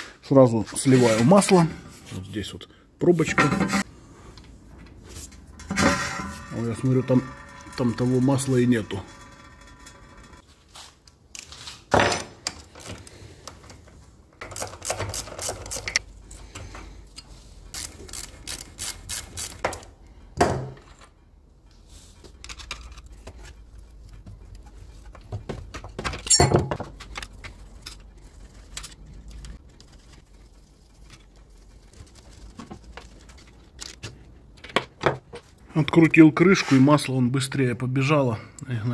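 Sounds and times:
metal tools clinking on engine casing: 0:26.1 - 0:27.0.

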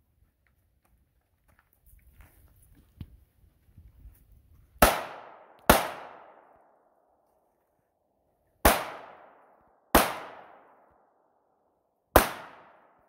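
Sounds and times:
pistol shots: 0:04.8 - 0:06.6, 0:08.6 - 0:10.9, 0:12.1 - 0:13.0.

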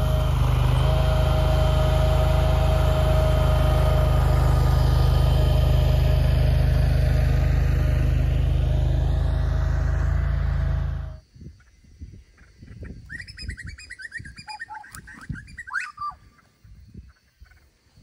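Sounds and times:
motor drone: 0:00.0 - 0:11.3
birds chirping: 0:11.0 - 0:17.8.

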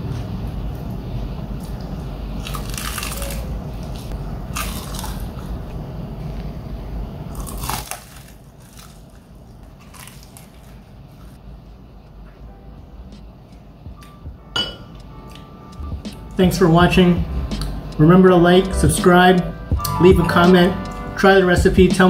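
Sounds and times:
crunchy chewing: 0:01.6 - 0:05.8, 0:07.3 - 0:11.4
low steady rumble: 0:08.5 - 0:22.0.

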